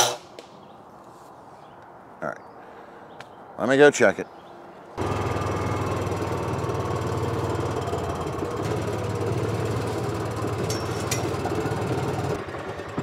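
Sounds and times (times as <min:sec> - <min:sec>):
utility vehicle engine droning: 0:05.0 - 0:13.0.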